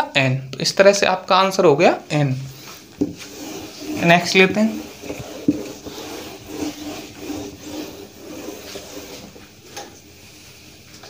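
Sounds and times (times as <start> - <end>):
eraser rubbing a whiteboard: 2.5 - 9.6.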